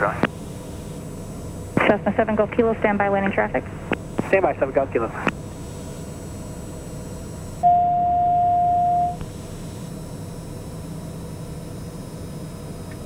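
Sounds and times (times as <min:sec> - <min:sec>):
turboprop aircraft drone: 0:00.0 - 0:13.0
electronic tone: 0:07.6 - 0:09.2.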